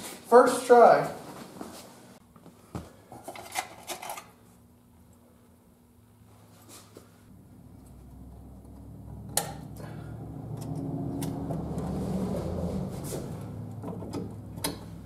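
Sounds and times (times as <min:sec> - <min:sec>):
low hum: 0:07.3 - 0:15.0.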